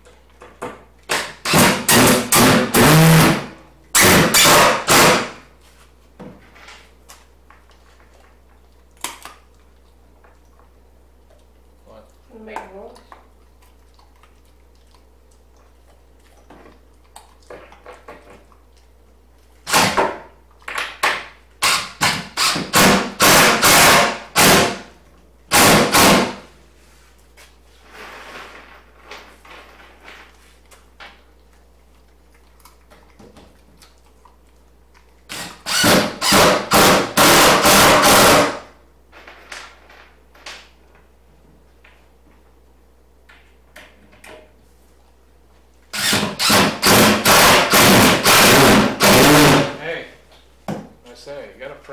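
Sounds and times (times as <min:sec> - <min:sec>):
power screwdriver driving screws: 0:35.3 - 0:38.5, 0:46.0 - 0:49.6.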